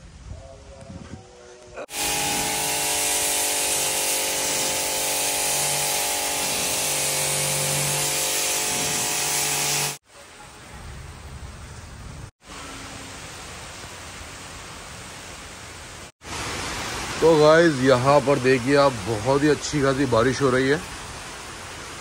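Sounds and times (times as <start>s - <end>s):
pressure washer jet hissing: 1.8s - 10.0s
rain hissing: 1.8s - 22.0s
pump motor whine and hum: 1.9s - 10.0s.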